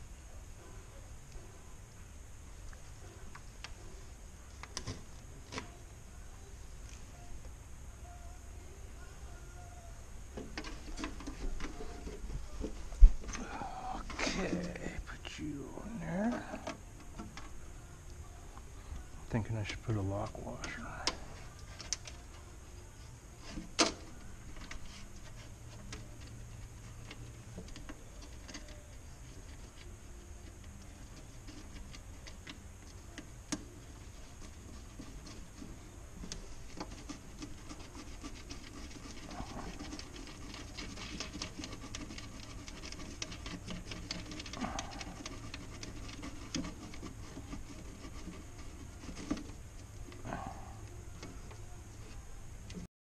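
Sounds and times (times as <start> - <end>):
hands rubbing and scratching: 10.5 - 17.3, 30.7 - 52.9
small irregular clicks: 23.7 - 52.9.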